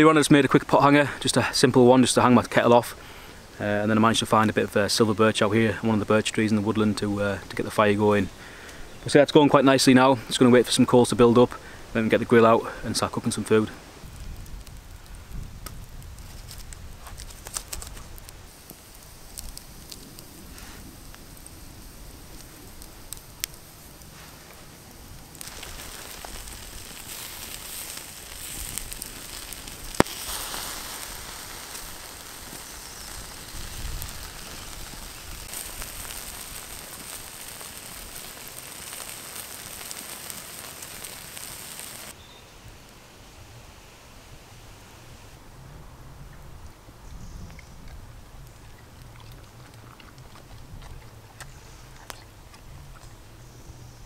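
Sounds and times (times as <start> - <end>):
campfire crackling and popping: 0.0 - 43.0, 46.3 - 53.7
food sizzling on a grill: 11.6 - 42.2.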